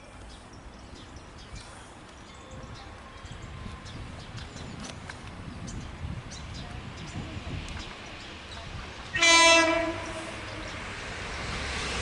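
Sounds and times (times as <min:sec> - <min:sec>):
wind buffeting microphone: 0:02.4 - 0:12.0.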